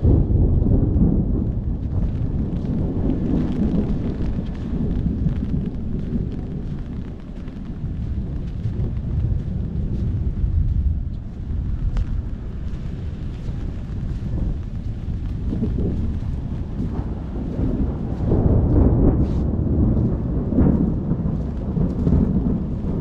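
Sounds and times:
rain hiss: 0:00.0 - 0:23.0
rolling thunder: 0:00.0 - 0:23.0
wind buffeting microphone: 0:00.0 - 0:23.0.

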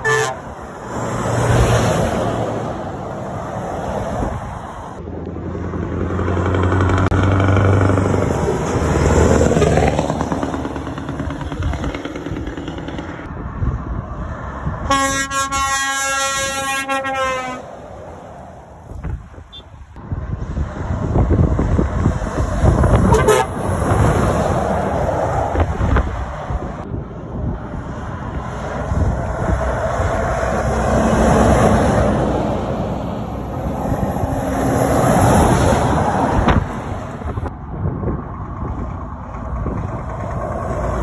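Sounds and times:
lorry air horn blast: 0:00.0 - 0:00.5, 0:14.9 - 0:17.6, 0:23.1 - 0:23.6
lorry diesel engine: 0:00.0 - 0:41.0.

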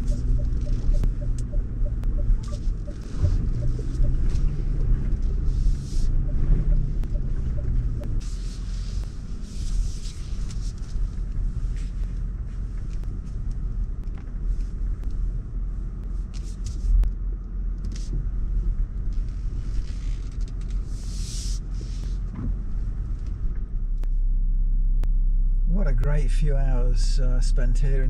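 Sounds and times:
engine and tyre rumble: 0:00.0 - 0:28.0.

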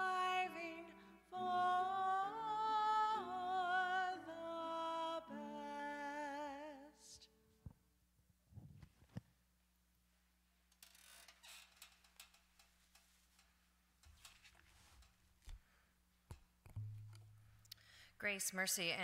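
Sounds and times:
soft clicks and rustles: 0:07.6 - 0:09.4, 0:10.2 - 0:17.3.

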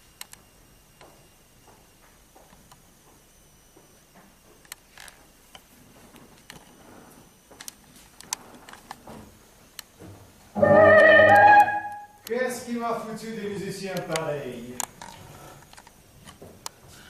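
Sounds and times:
light room hiss: 0:11.2 - 0:17.0.

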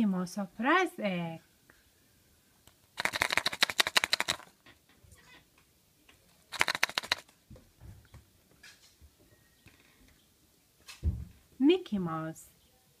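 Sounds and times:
plastic egg rattling: 0:02.7 - 0:04.6, 0:06.5 - 0:07.4.

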